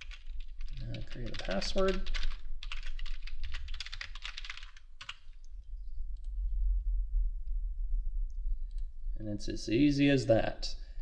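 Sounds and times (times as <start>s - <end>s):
keyboard typing: 0.0s - 5.3s
low steady hum: 0.0s - 11.0s.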